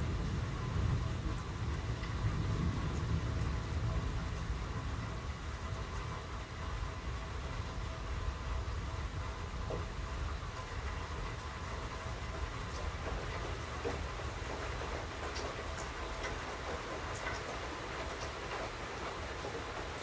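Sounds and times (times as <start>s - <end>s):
low thunder rumble: 0.0s - 10.6s
steady rain falling: 0.0s - 20.0s.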